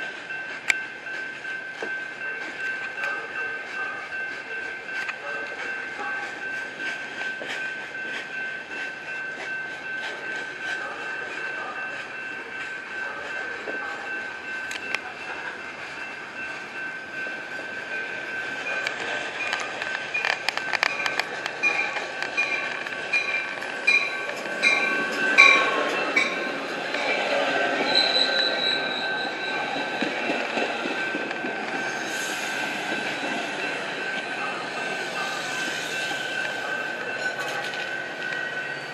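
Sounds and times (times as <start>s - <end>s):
steady high-pitched ring: 0.0s - 38.9s
train wheels clattering over rails: 16.4s - 38.8s.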